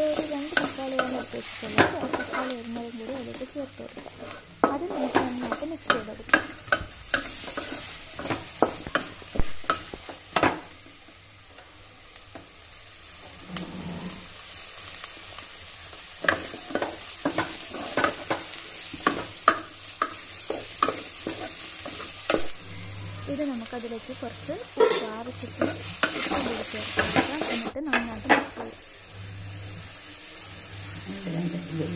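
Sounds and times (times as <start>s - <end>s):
faint frying sizzle: 0.0s - 31.9s
wooden spatula scraping metal pan: 13.3s - 14.4s.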